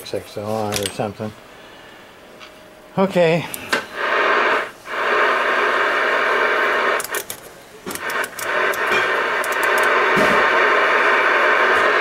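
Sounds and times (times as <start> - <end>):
radio static hiss: 3.1 - 12.0
radio crackles and clicks: 3.7 - 12.0.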